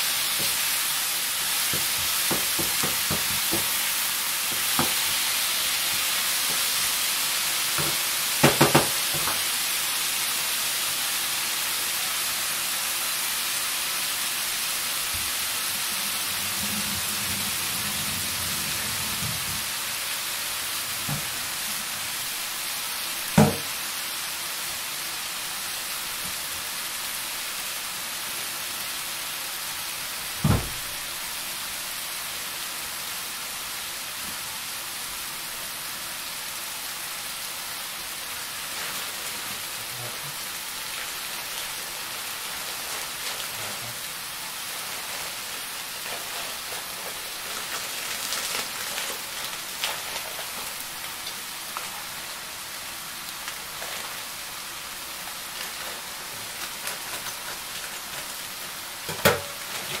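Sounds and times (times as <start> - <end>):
food sizzling in a frying pan: 0.0 - 60.0
heavy thump: 30.4 - 30.8.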